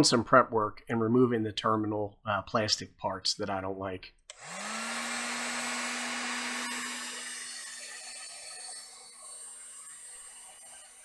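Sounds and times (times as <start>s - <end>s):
heat gun fan motor hum: 4.3s - 11.0s.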